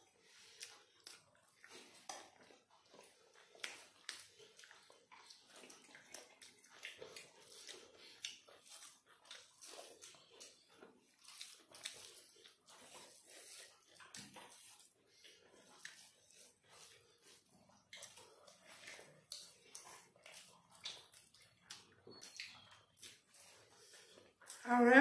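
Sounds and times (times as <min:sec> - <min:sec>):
chewing and mouth smacks: 0:00.0 - 0:24.7
fingers mixing rice on plates: 0:00.1 - 0:24.6.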